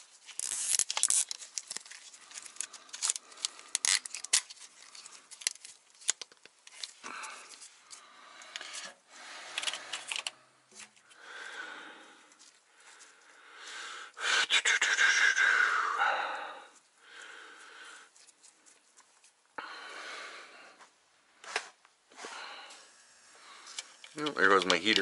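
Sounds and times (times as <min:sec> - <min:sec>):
sharp clicks of plastic wiring: 0:23.7 - 0:25.0.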